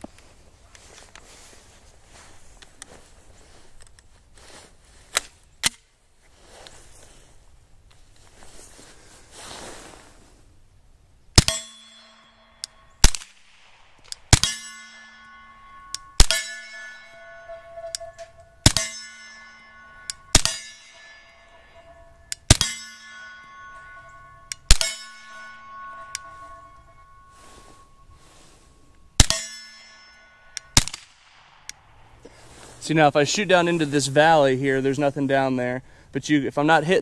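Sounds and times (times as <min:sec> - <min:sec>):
steel target ringing clang: 0:11.4 - 0:31.9.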